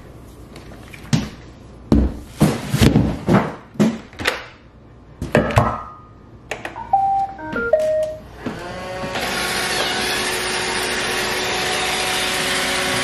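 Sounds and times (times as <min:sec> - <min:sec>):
short electronic tone: 0:06.8 - 0:08.3.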